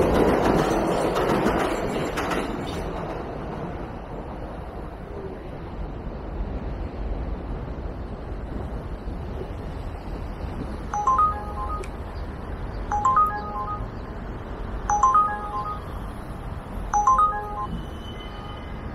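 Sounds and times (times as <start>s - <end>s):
wind: 0.0s - 18.9s
electronic chime beeps: 10.9s - 11.9s, 12.9s - 14.0s, 14.9s - 16.1s, 17.0s - 17.9s.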